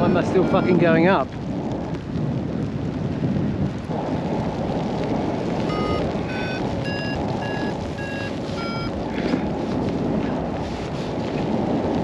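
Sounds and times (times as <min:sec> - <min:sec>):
wind on microphone: 0:00.0 - 0:12.0
variometer beeps: 0:05.6 - 0:09.0.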